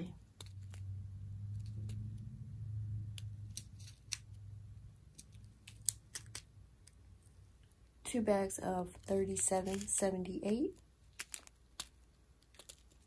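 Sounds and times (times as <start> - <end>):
low steady hum: 0.0 - 13.0
plastic bags crinkling: 9.0 - 13.0.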